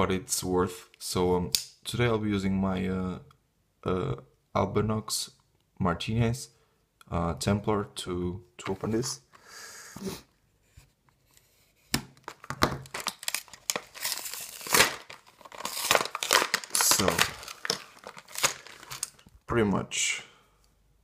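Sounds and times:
plastic blister pack crinkling: 12.1s - 19.4s
cardboard tearing: 12.2s - 19.2s.

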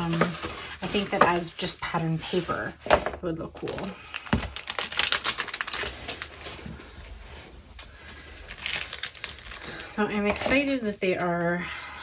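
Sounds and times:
plastic packaging crinkling: 3.5s - 11.4s.

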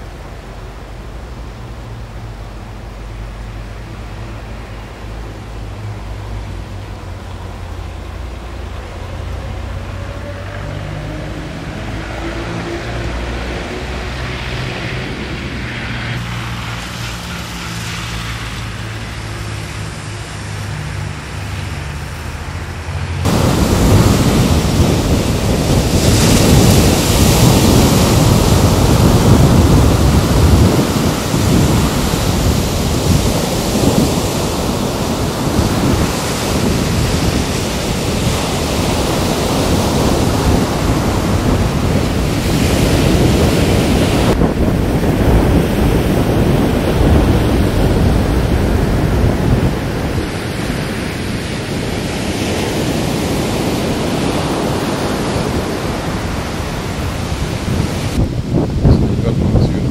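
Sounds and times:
wind buffeting microphone: 0.0s - 59.9s
surf breaking on beach: 10.8s - 59.9s.

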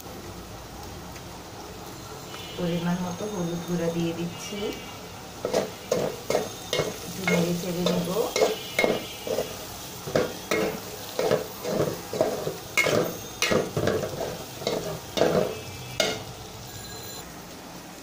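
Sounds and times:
food sizzling in oil: 0.0s - 18.0s
metal spatula scraping a pot: 5.4s - 16.3s.

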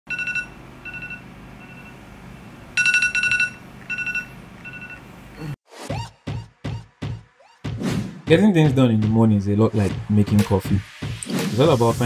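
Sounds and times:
smartphone alarm beeps: 0.1s - 2.0s, 2.8s - 5.0s.

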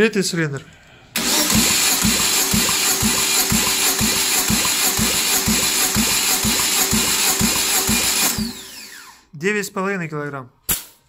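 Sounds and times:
starter motor cranking engine: 1.2s - 9.2s.

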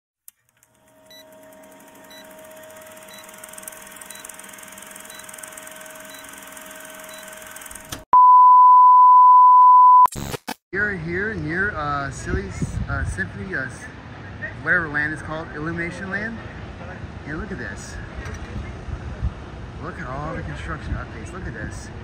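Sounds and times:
high test-tone beep: 6.1s - 6.3s, 8.1s - 10.1s.

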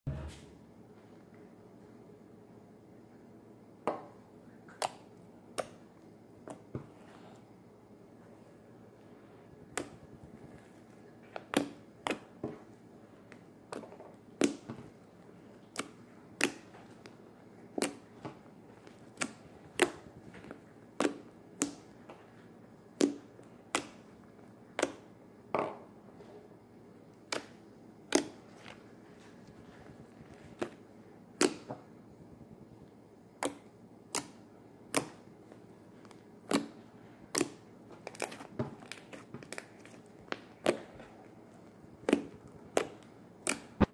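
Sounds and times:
slime popping and clicking: 36.4s - 39.6s.

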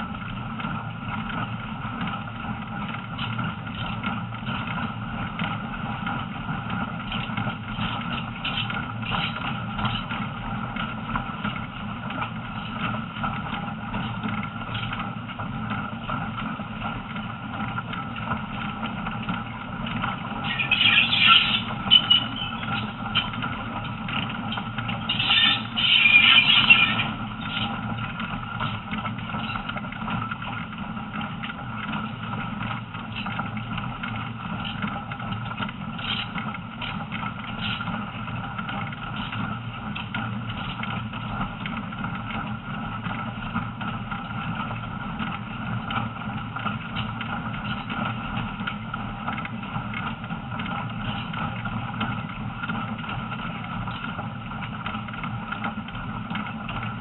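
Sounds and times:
train engine and wheels rumbling: 0.0s - 57.0s.

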